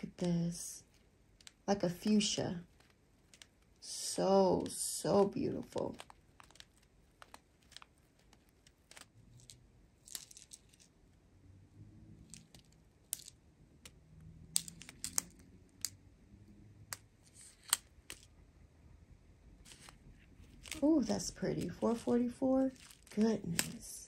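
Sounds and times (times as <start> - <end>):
plastic bags crinkling: 19.7 - 23.9.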